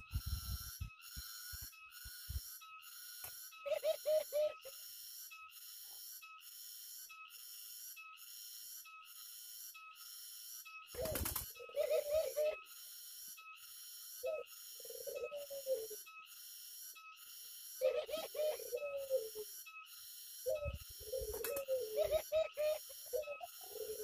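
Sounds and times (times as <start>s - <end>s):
high-pitched pulsing: 0.0s - 2.6s
doves cooing: 3.5s - 4.8s, 10.9s - 12.7s, 13.9s - 16.2s, 17.6s - 24.0s.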